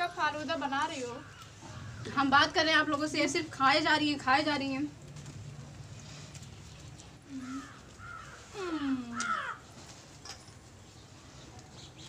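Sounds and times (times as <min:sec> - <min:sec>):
crow cawing: 0:07.4 - 0:08.4, 0:09.2 - 0:09.6.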